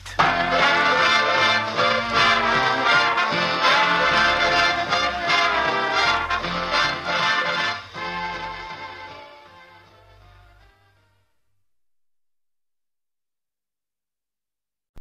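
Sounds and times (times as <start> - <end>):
instrumental soundtrack music: 0.0 - 11.2.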